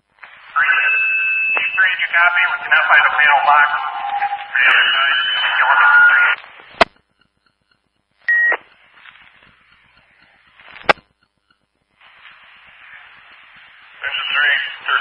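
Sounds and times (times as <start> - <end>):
radio hiss: 0.0 - 7.0, 8.2 - 11.1, 11.9 - 15.0
radio transmission: 0.0 - 7.0, 8.2 - 11.1, 12.0 - 15.0
radio static: 0.0 - 7.1, 8.2 - 11.1, 11.9 - 15.0
radio click: 1.5 - 15.0
short beep: 3.3 - 6.2.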